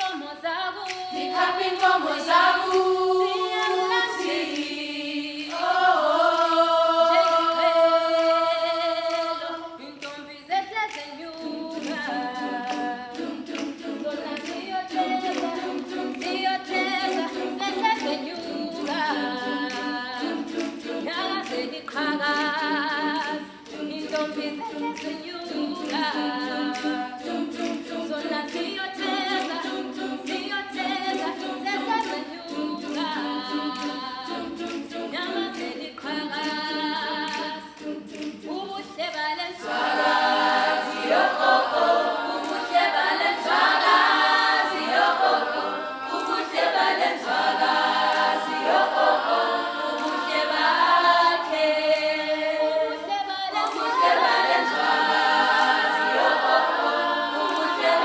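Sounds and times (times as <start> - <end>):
girls singing a cappella: 0.0 - 58.0.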